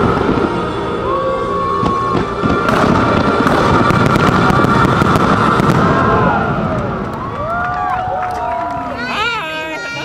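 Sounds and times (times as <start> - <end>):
fireworks booms: 0.0 - 0.8, 1.7 - 7.3
soundtrack music: 0.0 - 6.8
fireworks crackling: 0.0 - 9.9.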